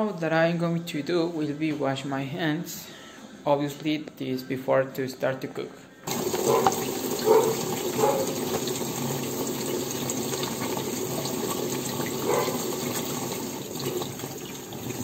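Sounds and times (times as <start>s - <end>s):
hands washing splashes: 6.1s - 15.0s.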